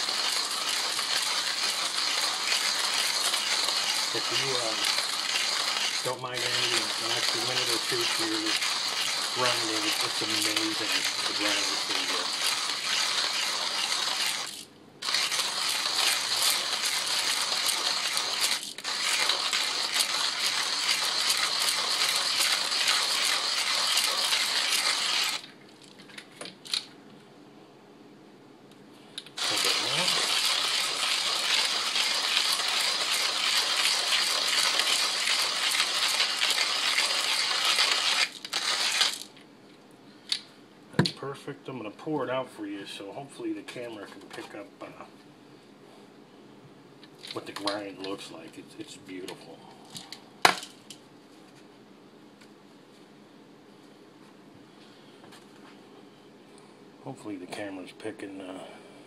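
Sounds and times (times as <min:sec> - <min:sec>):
hand grinder crunching coffee beans: 0:00.0 - 0:25.5, 0:29.4 - 0:39.4.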